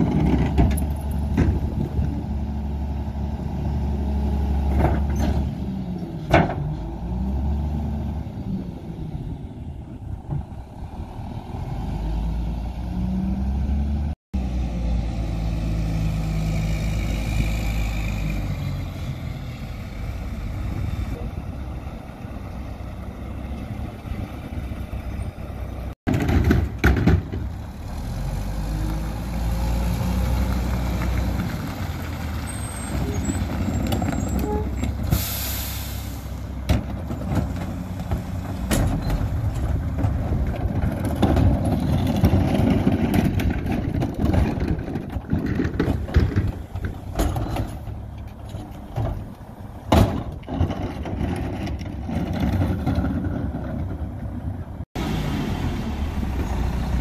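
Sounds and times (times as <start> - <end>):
garbage truck running: 0.0 - 57.0
metal clanks of cart dumping: 26.1 - 27.5, 32.5 - 54.3.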